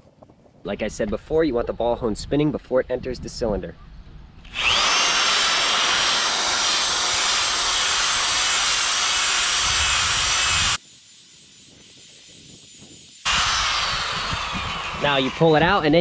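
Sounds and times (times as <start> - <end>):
electric drill whining: 4.4 - 10.8, 13.3 - 16.0.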